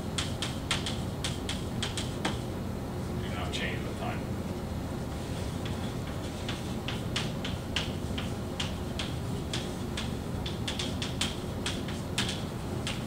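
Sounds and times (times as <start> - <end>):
chalk scratching on chalkboard: 5.2 - 10.1.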